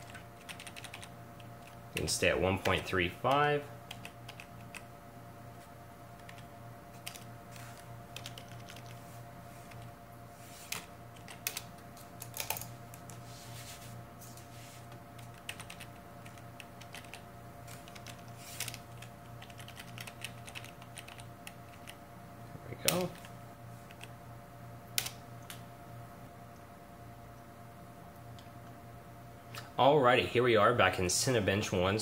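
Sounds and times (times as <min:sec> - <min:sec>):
keyboard keys clicking: 0:00.0 - 0:01.1, 0:08.2 - 0:09.0, 0:15.2 - 0:17.2, 0:19.4 - 0:22.0
steady low hum: 0:00.0 - 0:32.0.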